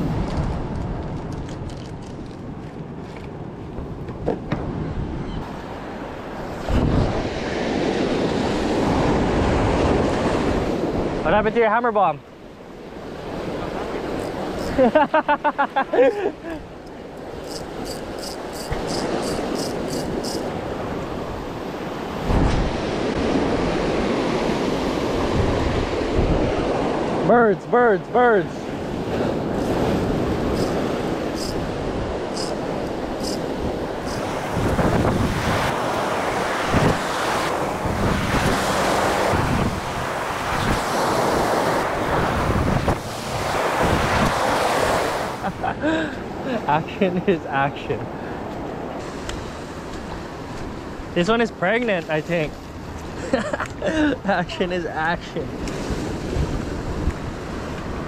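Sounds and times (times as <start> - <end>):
wind buffeting microphone: 0.0 - 11.4, 16.6 - 27.3, 28.6 - 47.0, 55.4 - 58.0
surf washing over rocks: 5.4 - 58.0.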